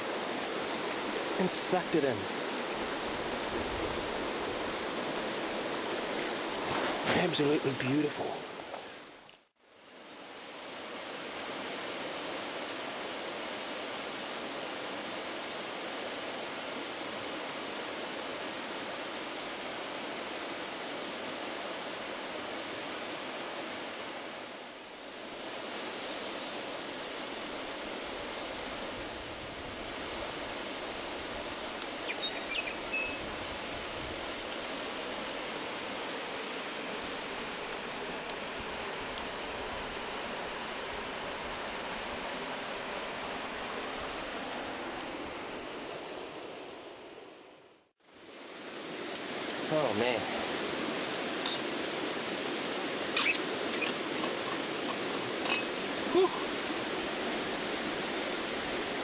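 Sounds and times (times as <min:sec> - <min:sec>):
river rushing over rapids: 0:00.0 - 0:59.0
high chirp: 0:53.2 - 0:54.0.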